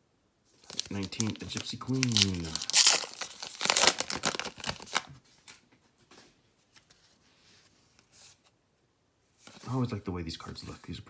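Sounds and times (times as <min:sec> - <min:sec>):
wrapper tearing and crinkling: 0:00.6 - 0:05.1
cards rustling and clicking: 0:00.6 - 0:05.6.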